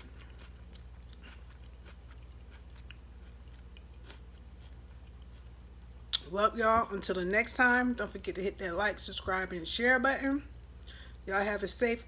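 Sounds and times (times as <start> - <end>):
chewing mouth clicks: 0.0 - 6.3
low steady hum: 0.0 - 12.0.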